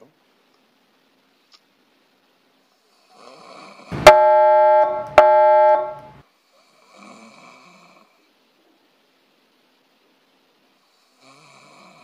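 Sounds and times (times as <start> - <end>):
faint snoring breaths: 2.7 - 3.9, 6.4 - 8.3, 10.8 - 12.0
electronic keyboard chord stings: 4.0 - 6.2.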